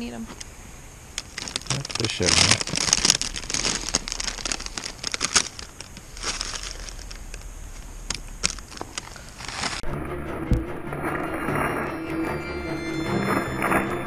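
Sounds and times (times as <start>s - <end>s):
chip bag crinkling: 1.2s - 9.8s
music: 9.8s - 14.0s.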